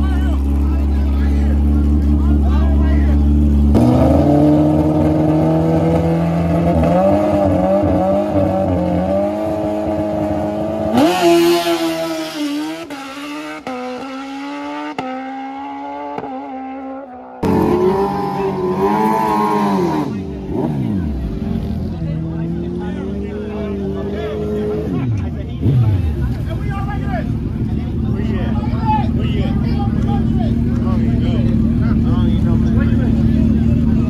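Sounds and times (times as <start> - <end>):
second motorcycle engine revving: 0.0 - 26.6
motorcycle engine revving and accelerating: 0.5 - 26.5.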